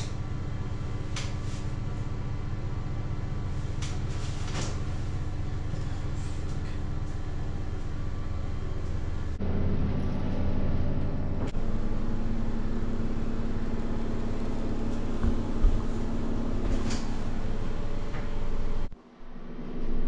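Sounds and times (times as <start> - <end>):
low droning hum with held tones: 0.0 - 20.0.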